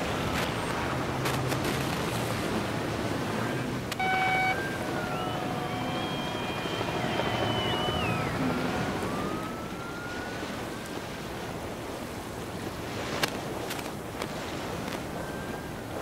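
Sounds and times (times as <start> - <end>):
wind and water rushing: 0.0 - 16.0
sliding high tones: 4.0 - 10.4.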